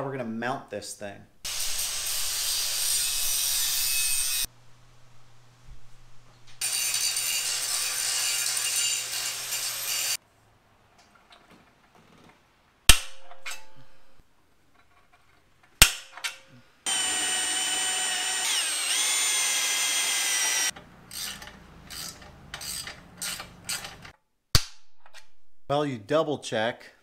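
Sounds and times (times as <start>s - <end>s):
cordless drill boring into metal: 16.9s - 21.4s.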